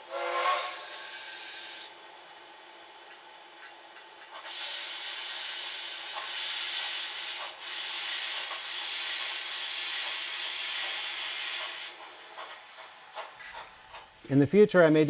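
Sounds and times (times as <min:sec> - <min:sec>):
steam hiss from small speaker: 0:04.4 - 0:12.0.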